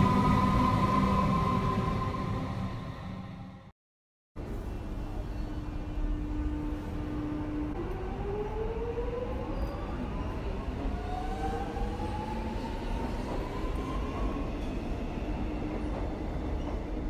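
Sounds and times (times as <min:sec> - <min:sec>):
train steady hum: 0:04.4 - 0:17.0.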